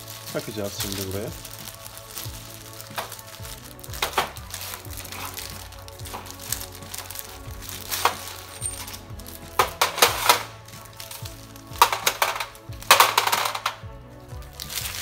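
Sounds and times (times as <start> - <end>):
metallic clinks and rattles: 2.9 - 13.9.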